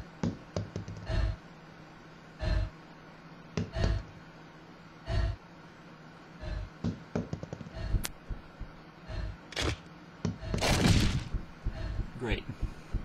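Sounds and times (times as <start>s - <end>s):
dull thumps: 10.3s - 13.0s.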